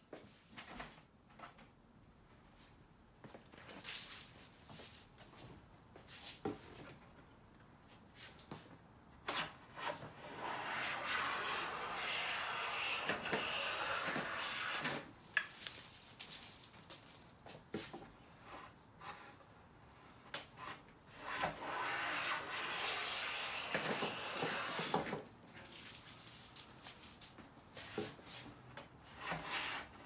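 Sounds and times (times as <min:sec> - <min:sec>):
hand plane shearing wood: 0:09.8 - 0:14.9, 0:21.2 - 0:25.1.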